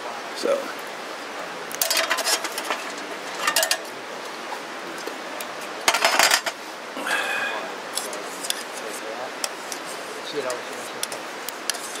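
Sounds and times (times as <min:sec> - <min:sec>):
wood and metal clattering on grill: 0:01.7 - 0:03.9, 0:05.8 - 0:06.6.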